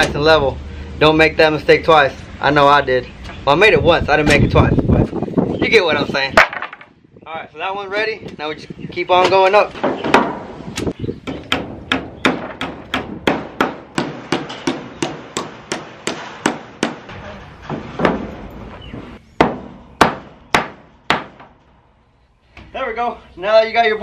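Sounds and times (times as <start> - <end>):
hammer striking nails into wood: 11.3 - 17.1, 17.7 - 18.4, 19.4 - 21.6.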